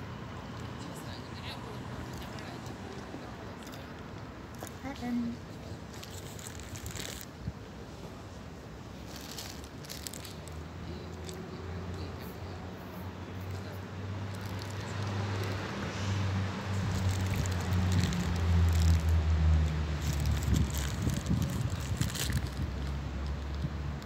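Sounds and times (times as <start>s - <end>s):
paper wrapper crinkling: 6.0s - 7.3s, 9.1s - 10.6s, 14.3s - 15.6s, 16.8s - 19.3s, 19.9s - 23.4s
low engine hum: 9.0s - 24.0s.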